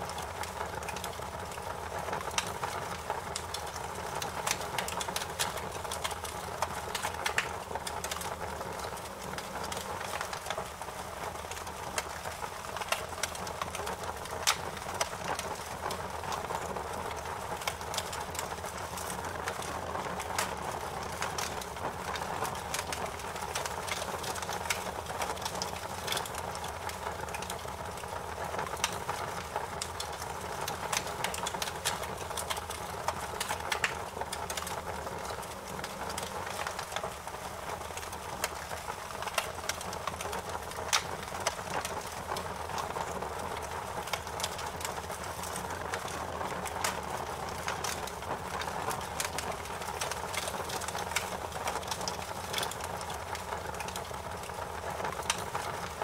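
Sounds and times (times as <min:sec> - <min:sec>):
wood fire crackling: 0:00.0 - 0:56.0
sharp pops and snaps: 0:20.3 - 0:55.8.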